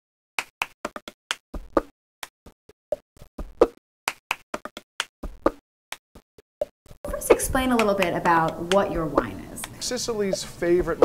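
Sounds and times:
dry rhythmic percussive clicks: 0:06.6 - 0:11.0.

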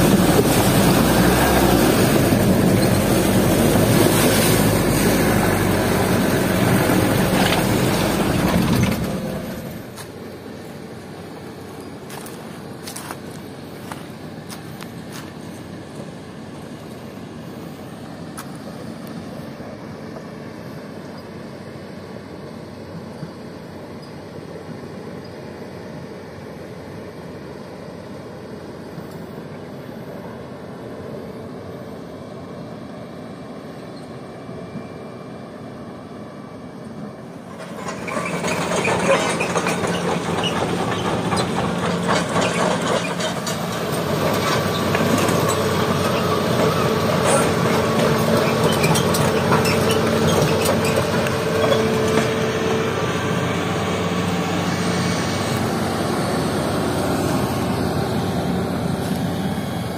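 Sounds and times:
tracks rattling and clanking: 0:00.0 - 0:10.1, 0:37.5 - 0:59.3
excavator diesel engine running: 0:00.0 - 0:33.6, 0:34.5 - 0:59.9.

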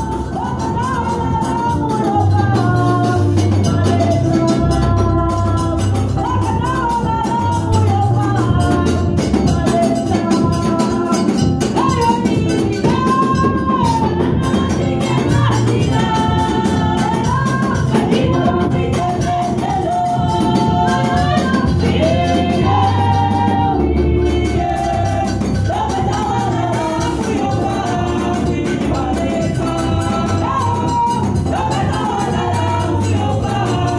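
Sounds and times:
beat with bass and percussion: 0:00.0 - 0:33.9
women singing gospel song: 0:00.0 - 0:33.9.

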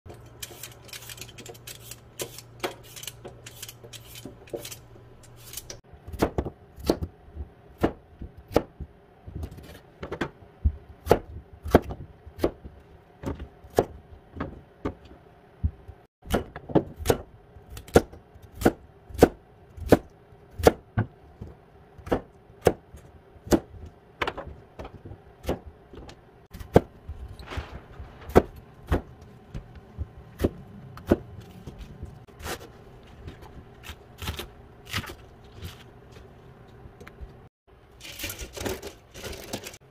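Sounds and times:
vegetable peeler scraping potato: 0:00.2 - 0:05.8
knife chopping on plastic board: 0:22.0 - 0:26.9.

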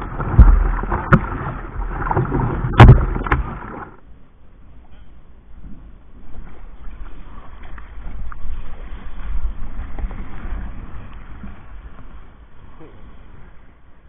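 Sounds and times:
heavy low rumble: 0:00.0 - 0:04.0
water splashing along kayak hull: 0:00.0 - 0:04.0, 0:05.9 - 0:13.9.

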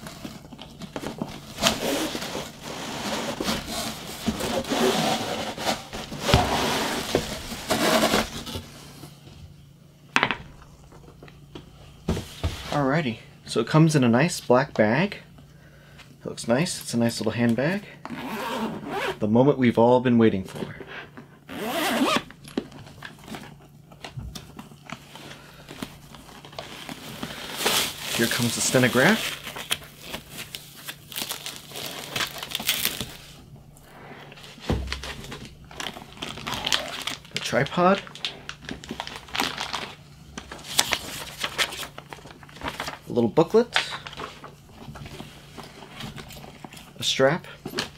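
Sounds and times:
packing material crinkling: 0:25.8 - 0:33.4, 0:34.4 - 0:44.6.

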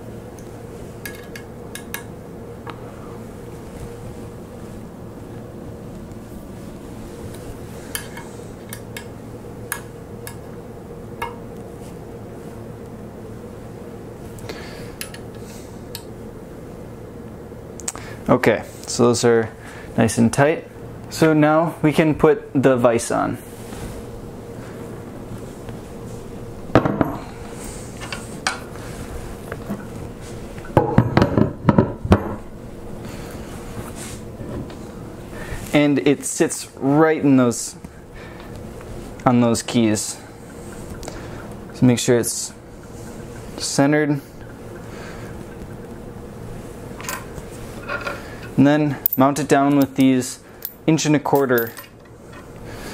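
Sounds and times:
steady background hum: 0:00.0 - 0:52.9
allen wrench clinking on steel: 0:49.1 - 0:52.1.

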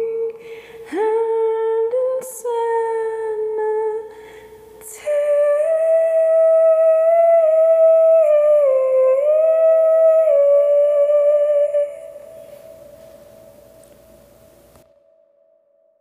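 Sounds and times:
faint steady note: 0:04.5 - 0:15.9.

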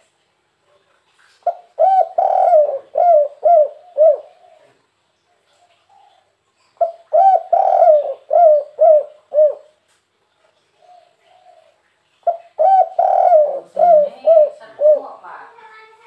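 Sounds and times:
dove cooing: 0:01.4 - 0:04.8, 0:05.5 - 0:09.8, 0:10.8 - 0:15.3.

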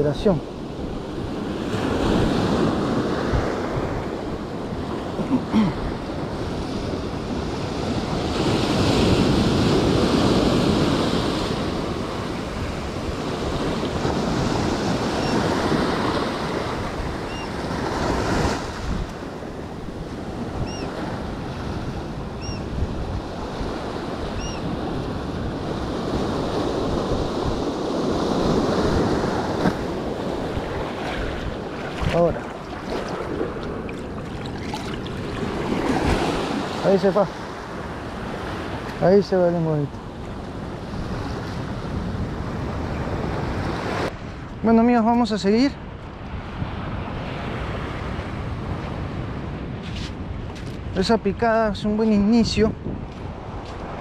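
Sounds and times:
ocean surf breaking on beach: 0:00.0 - 0:51.4
wind buffeting microphone: 0:05.8 - 0:39.0, 0:45.8 - 0:54.0.

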